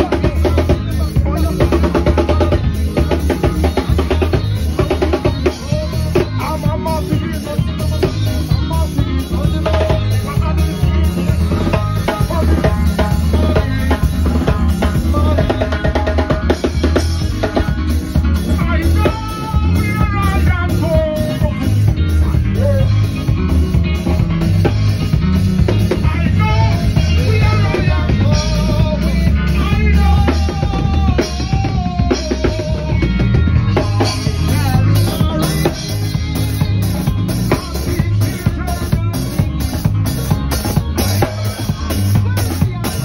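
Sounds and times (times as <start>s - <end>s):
person singing through a pa: 0.0s - 23.4s, 25.7s - 43.0s
drum kit rimshots: 0.0s - 43.0s
live band playing: 0.0s - 43.0s.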